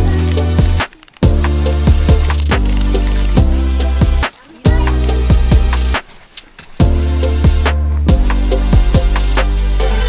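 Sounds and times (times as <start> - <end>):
electronic music with deep bass: 0.0 - 6.0, 6.8 - 10.0.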